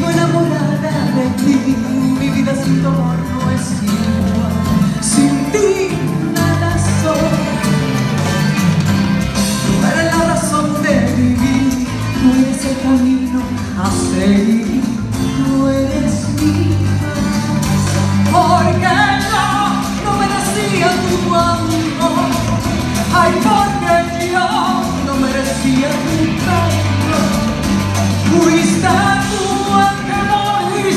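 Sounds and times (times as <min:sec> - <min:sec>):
instrumental accompaniment: 0:00.0 - 0:30.9
steady bass: 0:00.0 - 0:30.9
woman singing into a microphone: 0:05.0 - 0:08.0, 0:18.3 - 0:27.5, 0:28.2 - 0:30.9.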